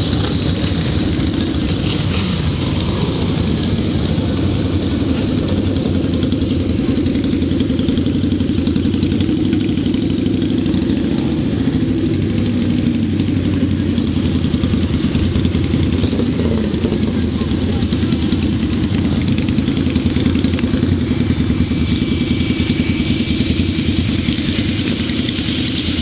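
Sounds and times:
motorcycle engines idling: 0.0 - 26.0.

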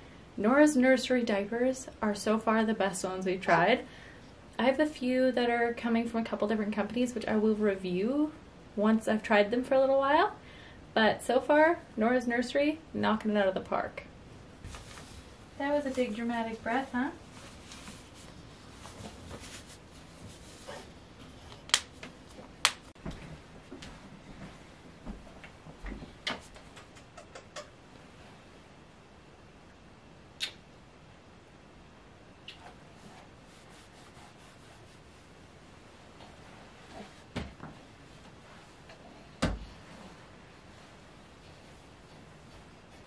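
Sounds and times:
faint room noise: 0.0 - 43.0.

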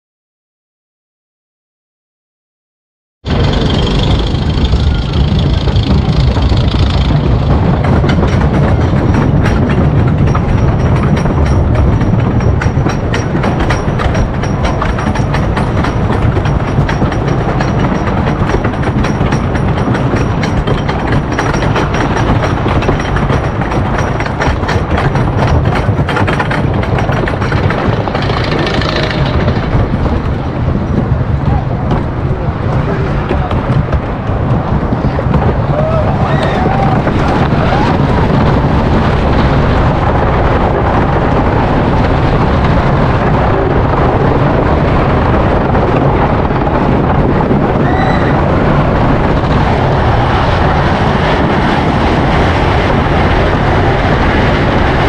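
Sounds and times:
roller coaster low rumble: 3.2 - 55.0
lift chain clicking: 3.3 - 30.1.

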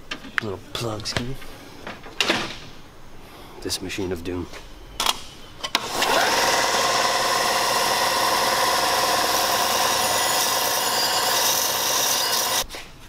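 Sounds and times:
belt sander motor whining: 5.8 - 12.6
steel sanding on abrasive belt: 6.1 - 12.6.

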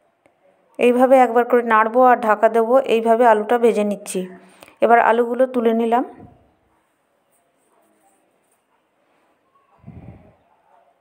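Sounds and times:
faint handling sounds: 6.7 - 10.7.

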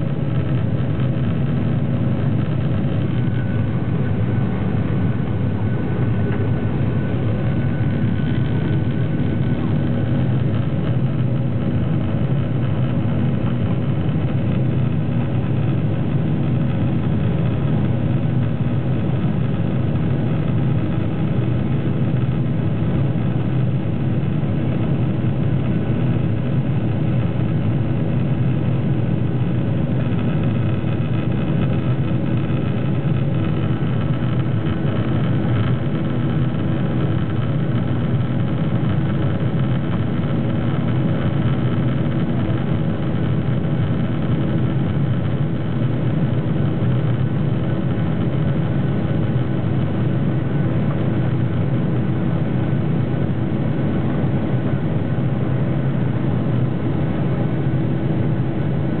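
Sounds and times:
air rushing along fuselage: 0.0 - 18.9
jet engine drone: 0.0 - 59.0
steady humming tones: 0.0 - 59.0.

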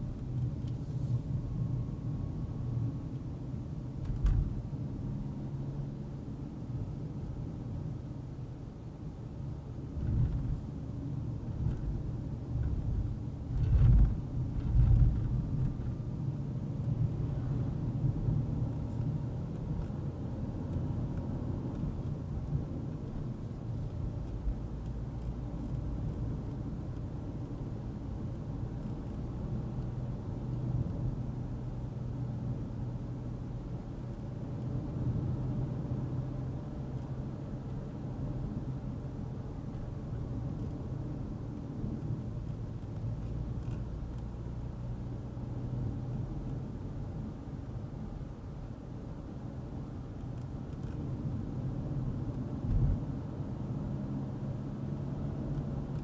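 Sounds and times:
car engine hum: 0.0 - 56.0
tyre and road noise: 9.6 - 56.0.

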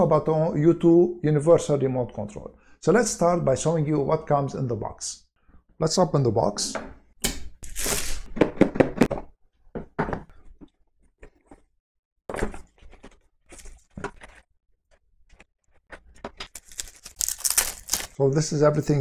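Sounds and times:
paper and plastic rustling: 16.0 - 18.2.

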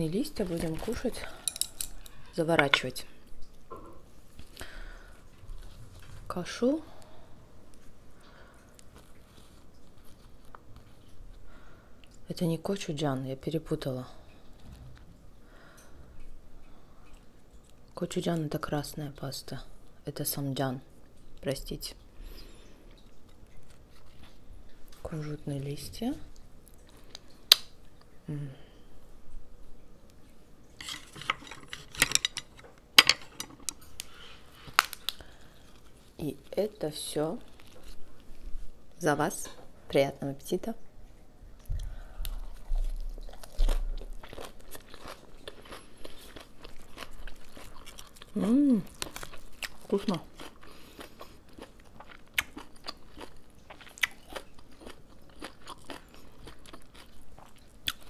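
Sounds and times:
person chewing crunchy food: 22.9 - 25.0, 41.7 - 58.0.

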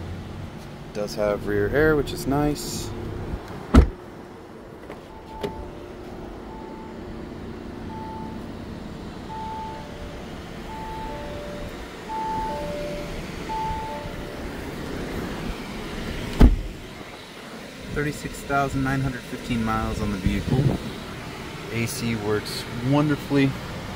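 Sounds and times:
steady hum: 1.4 - 23.9
car door shutting: 3.4 - 4.1, 4.8 - 5.9, 11.0 - 17.0
car warning chime: 5.1 - 7.1, 7.8 - 8.6, 9.2 - 14.9.

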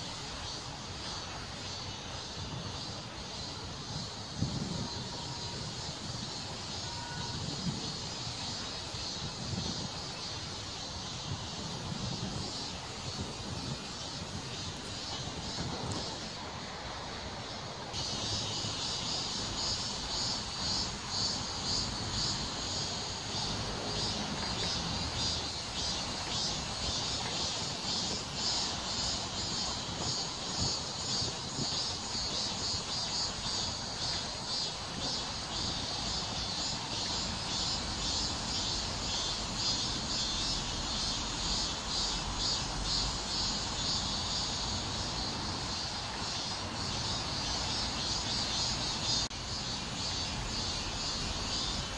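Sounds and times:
insects chirring: 0.0 - 51.9.

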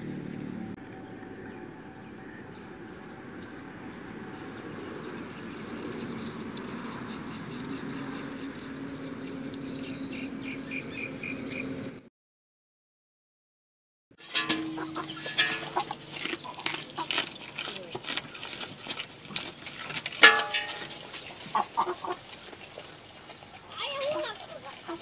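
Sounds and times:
insects chirring: 0.0 - 11.1.

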